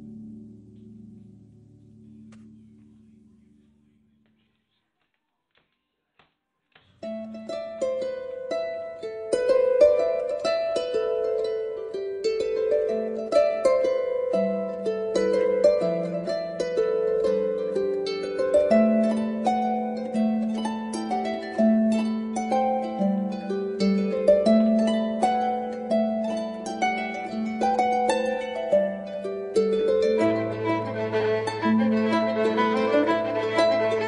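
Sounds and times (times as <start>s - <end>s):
harp playing plucked notes: 7.0s - 34.0s.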